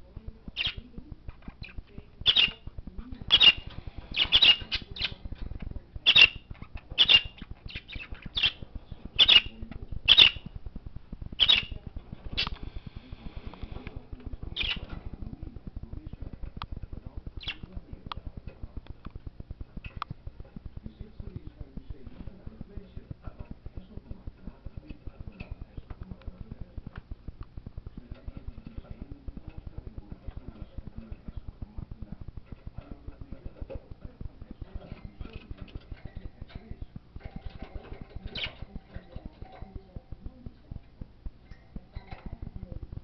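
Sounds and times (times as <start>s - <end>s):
budgerigar squawking chirps: 1.6s - 2.6s, 3.3s - 5.2s, 6.0s - 8.6s, 9.2s - 10.5s, 11.4s - 11.8s, 14.6s - 14.9s.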